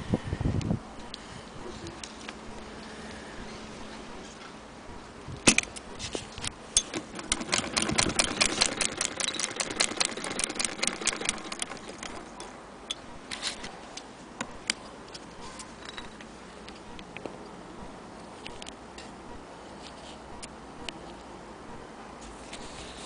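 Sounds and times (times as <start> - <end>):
sewing machine clicking: 6.8 - 12.5.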